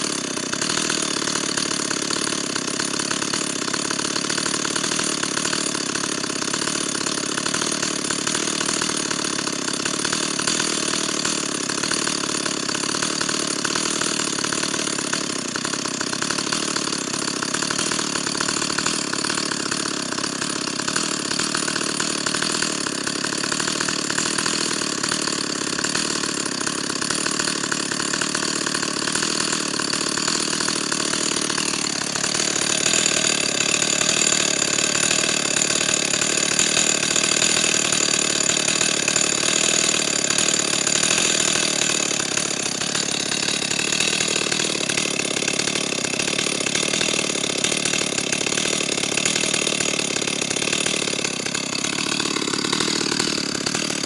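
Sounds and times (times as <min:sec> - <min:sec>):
chainsaw engine idling: 0:00.0 - 0:54.0.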